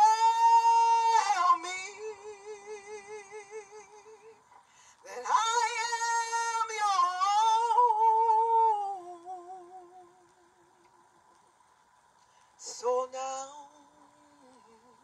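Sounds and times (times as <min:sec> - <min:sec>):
woman singing into microphone: 0:00.0 - 0:04.4, 0:05.0 - 0:10.6, 0:12.6 - 0:15.0.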